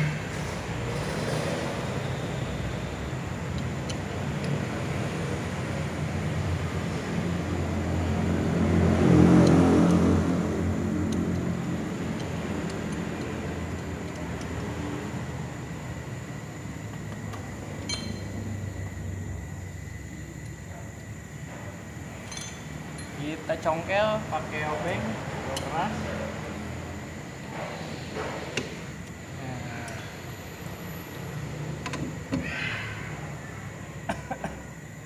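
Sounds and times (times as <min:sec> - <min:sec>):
vehicle engine passing: 0:04.6 - 0:13.6.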